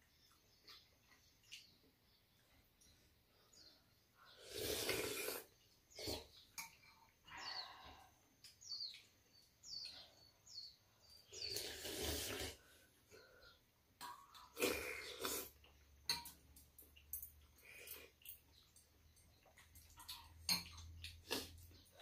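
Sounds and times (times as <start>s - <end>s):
people slurping soup: 4.3s - 6.4s, 11.3s - 12.9s, 14.4s - 15.7s
metal spoons clicking on bowls: 16.0s - 21.2s.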